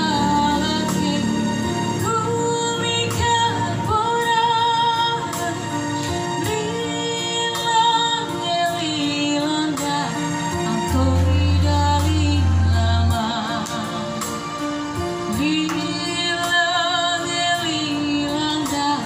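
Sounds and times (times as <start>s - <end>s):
girl singing into microphone: 0.0s - 19.0s
keyboard playing: 0.0s - 19.0s.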